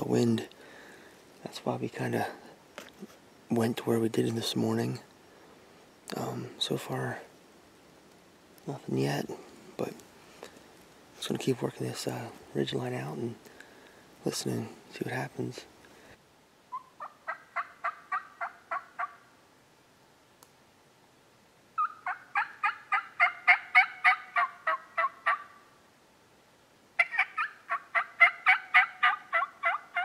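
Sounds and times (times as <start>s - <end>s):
turkey call yelps: 16.7s - 19.2s, 21.8s - 25.7s, 27.0s - 30.0s.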